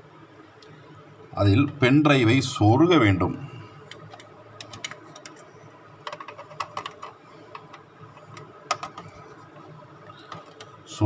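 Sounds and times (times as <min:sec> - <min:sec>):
plastic clicks and rattles: 0:03.9 - 0:09.2, 0:10.1 - 0:10.8.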